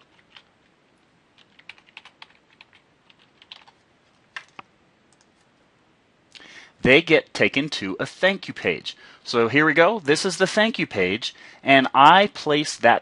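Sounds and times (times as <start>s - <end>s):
computer keyboard keystrokes: 0.0s - 0.5s, 1.4s - 5.4s.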